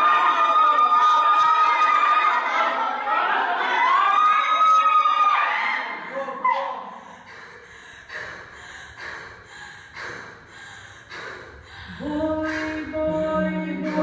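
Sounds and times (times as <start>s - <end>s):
group breathing out noisily: 6.0s - 12.9s
voices holding a chord: 11.9s - 14.0s.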